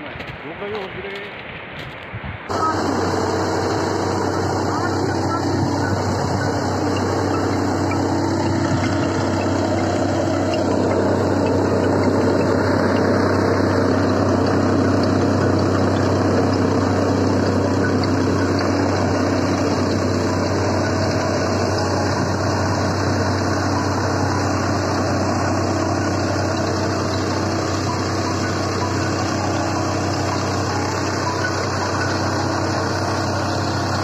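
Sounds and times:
snowblower engine drone: 2.5 - 34.0.

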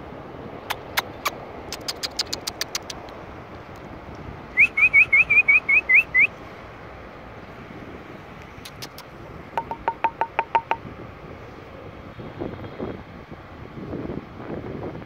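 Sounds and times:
sharp clicks: 0.7 - 3.2
rising whistle-like chirps: 4.6 - 6.3.

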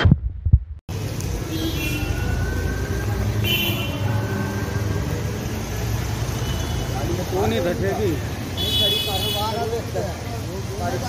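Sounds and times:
vehicle engines rumbling: 0.9 - 11.0
car horn: 1.4 - 4.6, 6.3 - 7.2, 8.5 - 9.8.

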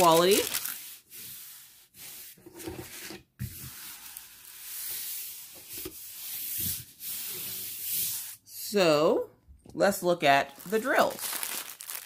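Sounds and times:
paper rustling and rubbing: 0.0 - 8.4.

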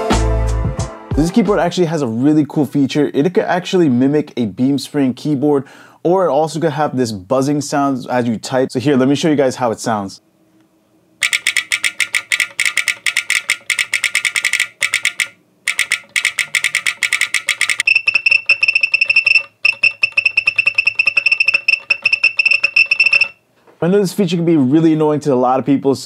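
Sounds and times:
rapid mechanical keyboard typing: 11.2 - 23.4
keyboard buzzer tone: 14.9 - 23.4.

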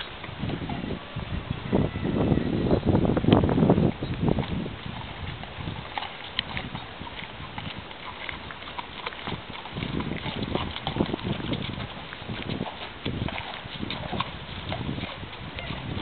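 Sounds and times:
horse hoofbeats: 3.2 - 16.0.

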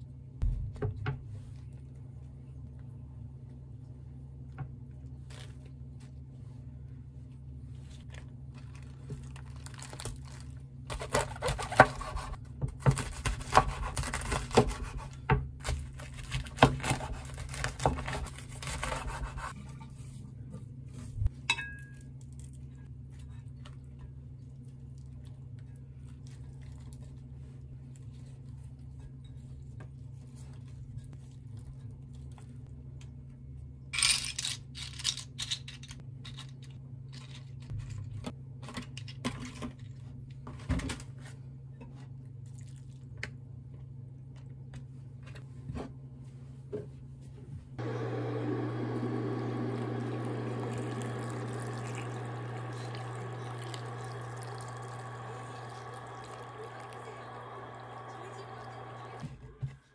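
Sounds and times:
low steady hum: 41.4 - 59.9.

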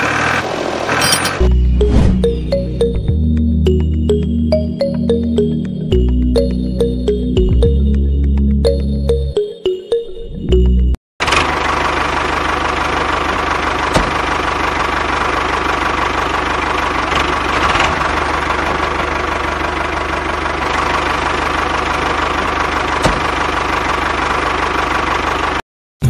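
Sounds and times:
model tractor engine running: 11.2 - 25.6.

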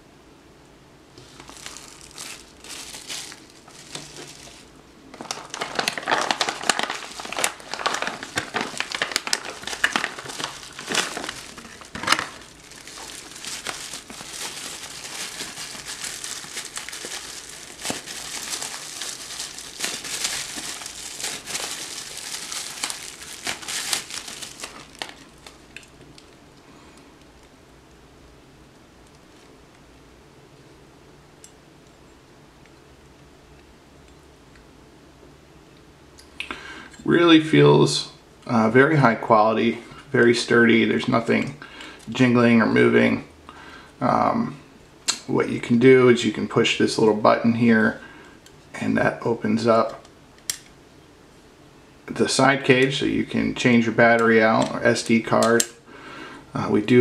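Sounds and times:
plastic wrap crinkling: 1.2 - 27.5, 52.1 - 55.8.

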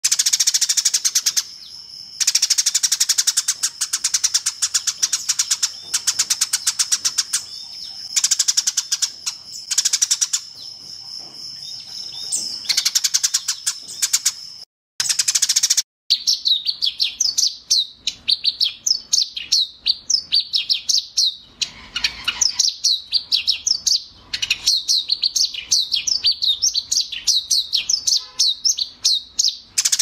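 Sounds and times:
sparrow chattering: 2.2 - 10.7.

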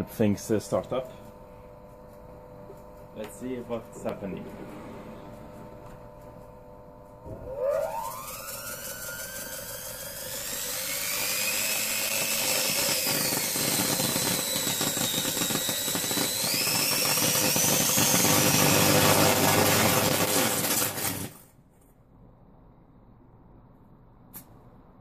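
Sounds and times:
motor high whine: 0.0 - 20.8.

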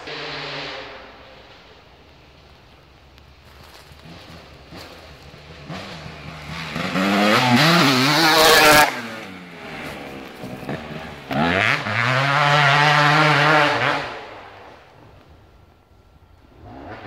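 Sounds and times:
dirt bike engine revving: 0.0 - 1.6, 3.5 - 14.9, 16.5 - 17.0.

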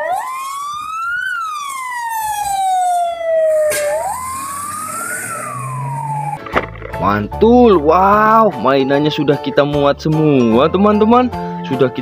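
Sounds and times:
fire engine siren wailing: 0.0 - 7.0.

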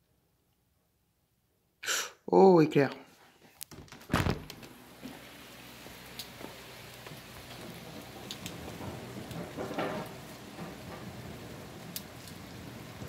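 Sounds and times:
steady rain falling: 4.2 - 13.0
raindrop ticks: 5.9 - 13.0.

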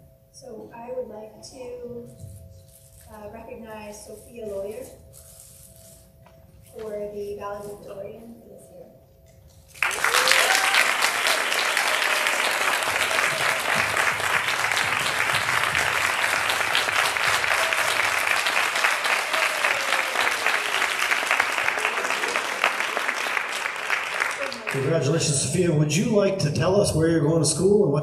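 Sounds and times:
audience applauding: 9.7 - 25.4.

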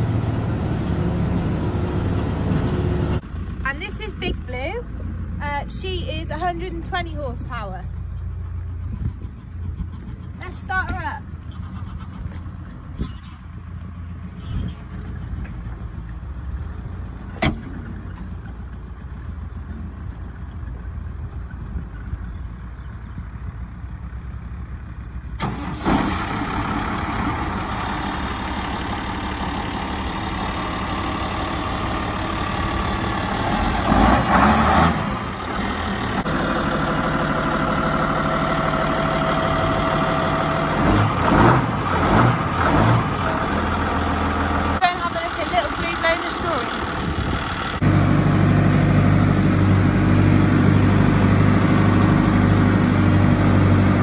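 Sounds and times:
tractor engine revving: 0.0 - 4.8, 25.4 - 54.0
tractor diesel engine idling: 0.0 - 54.0.

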